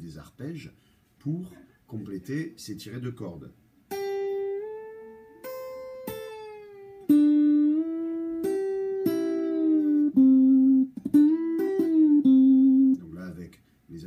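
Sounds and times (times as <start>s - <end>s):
electric guitar plucked notes: 3.9s - 13.1s.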